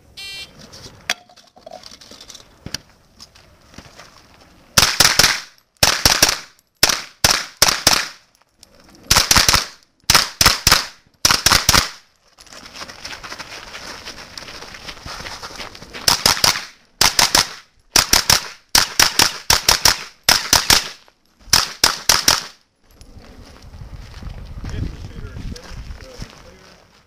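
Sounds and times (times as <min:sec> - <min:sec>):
shot timer beep: 0:00.2 - 0:00.5.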